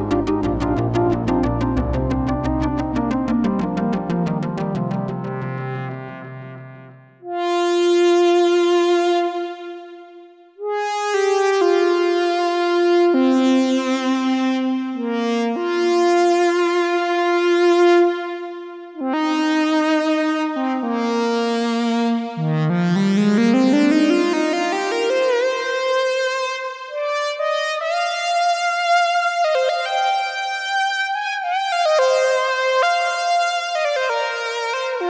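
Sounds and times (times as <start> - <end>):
synthesizer lead melody: 0.0 - 7.6, 22.3 - 26.2.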